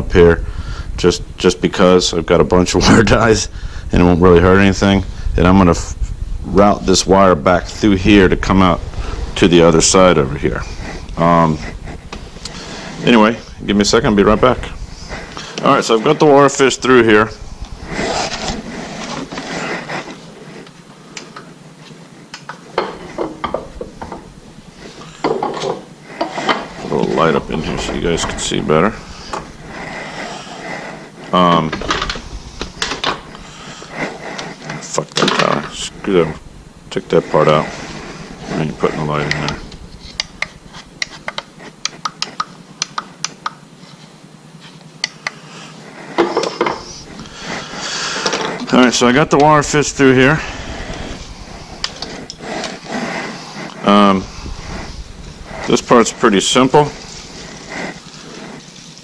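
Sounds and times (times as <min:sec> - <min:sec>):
jacket rubbing on microphone: 0:00.0 - 0:20.9, 0:26.0 - 0:41.8, 0:46.8 - 0:59.0.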